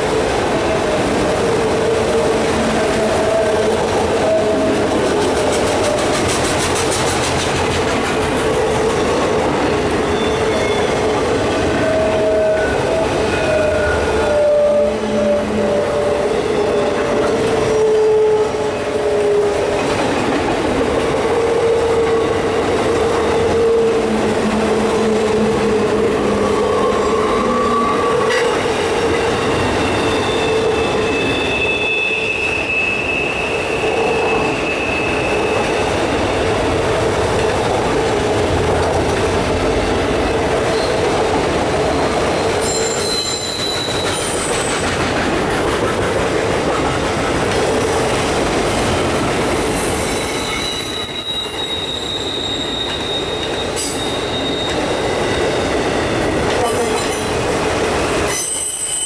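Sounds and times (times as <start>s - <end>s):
train wheels rumbling on rail: 0.0s - 59.0s
wheel squeal: 10.0s - 19.8s, 26.4s - 36.4s, 41.9s - 45.0s, 49.0s - 56.2s, 58.1s - 59.0s.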